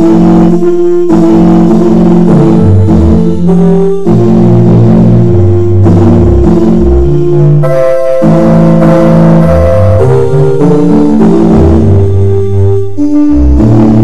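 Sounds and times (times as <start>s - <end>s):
instrumental music: 0.0s - 14.0s.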